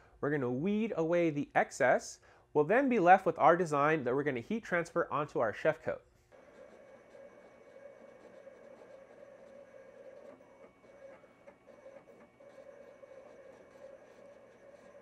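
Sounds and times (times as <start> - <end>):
vinyl cutter motor hum: 6.3 - 15.0.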